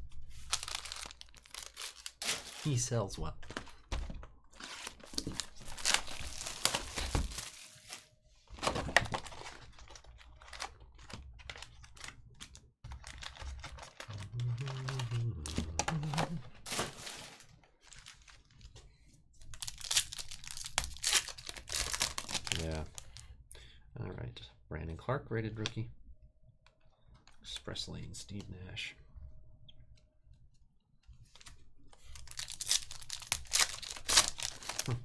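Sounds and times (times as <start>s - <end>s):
plastic shrink-wrap crinkling: 0.3s - 3.0s, 4.6s - 18.7s, 19.5s - 23.2s, 32.0s - 35.0s
foil pack tearing: 32.3s - 34.9s.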